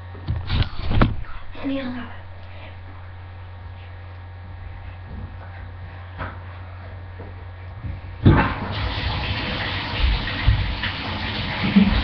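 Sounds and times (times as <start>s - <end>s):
water gushing: 8.2s - 12.0s.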